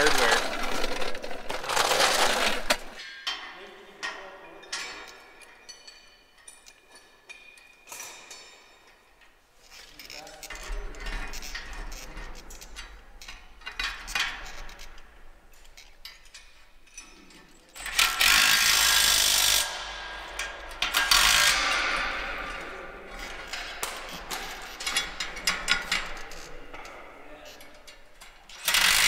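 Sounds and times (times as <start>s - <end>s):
light metal clinks: 3.0s - 10.8s.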